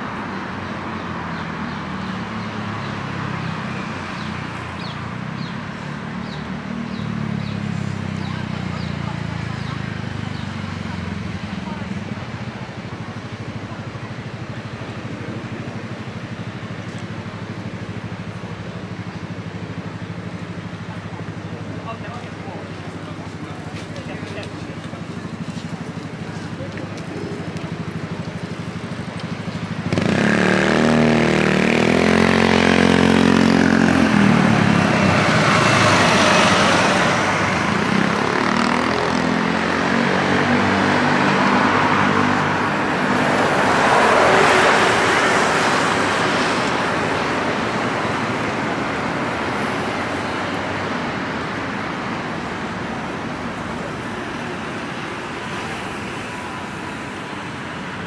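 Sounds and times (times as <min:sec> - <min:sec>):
busy road traffic: 0:00.0 - 0:58.0
vehicle engine passing by: 0:29.5 - 0:50.5.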